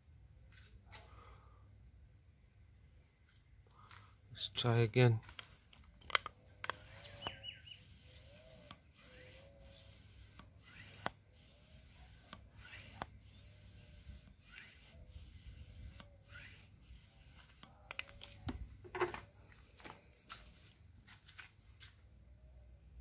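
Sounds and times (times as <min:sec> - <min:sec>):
faint handling noises: 0:03.1 - 0:07.4, 0:17.3 - 0:22.2
soft short squeaks: 0:06.7 - 0:19.3.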